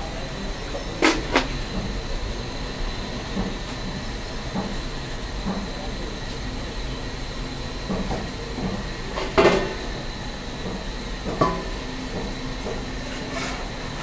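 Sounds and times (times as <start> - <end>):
faint voices: 0.0 - 4.1, 5.2 - 10.6
restaurant hum: 0.0 - 14.0.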